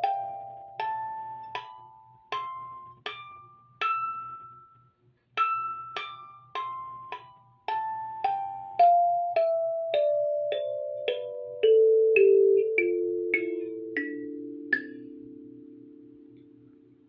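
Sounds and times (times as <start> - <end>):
kalimba notes plucked: 0.0 - 4.6, 5.4 - 17.0.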